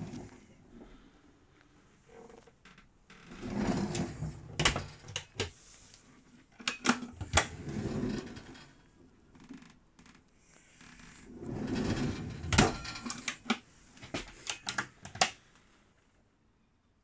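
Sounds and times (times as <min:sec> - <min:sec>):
drawer sliding on runners: 0:03.3 - 0:05.6, 0:06.9 - 0:08.7, 0:11.1 - 0:15.2.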